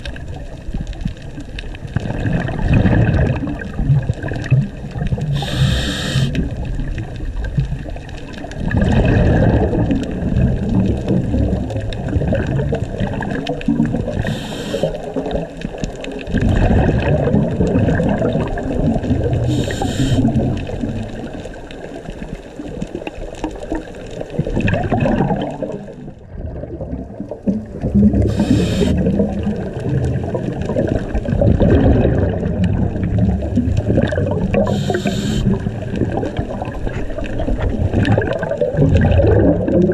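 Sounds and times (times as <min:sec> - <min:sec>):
exhaled bubbles gurgling: 0:00.0 - 0:39.9
regulator inhale hiss: 0:05.3 - 0:06.4, 0:14.2 - 0:15.2, 0:19.5 - 0:20.4, 0:28.2 - 0:29.1, 0:34.6 - 0:35.6.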